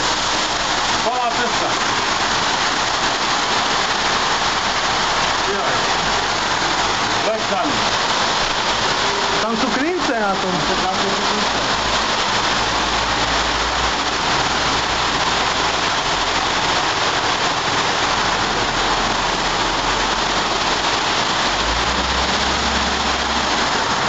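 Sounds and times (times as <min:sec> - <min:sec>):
heavy rain on pavement: 0:00.0 - 0:24.0.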